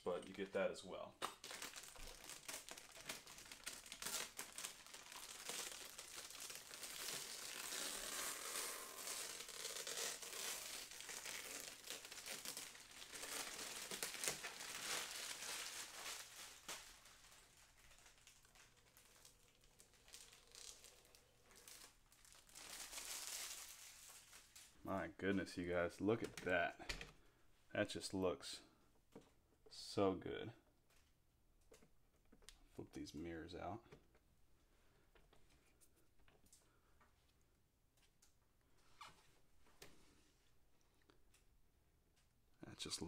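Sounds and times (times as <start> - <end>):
plastic bag crinkling: 1.2 - 24.8.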